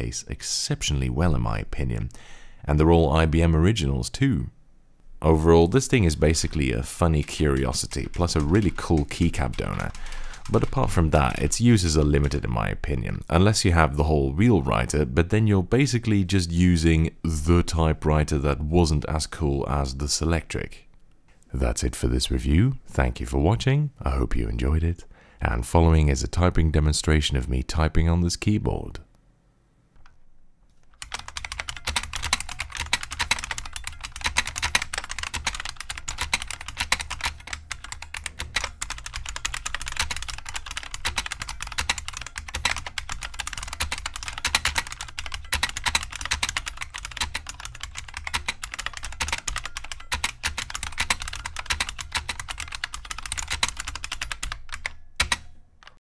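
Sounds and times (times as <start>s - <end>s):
fast typing on clicky keyboard: 6.1s - 12.5s, 31.0s - 56.0s.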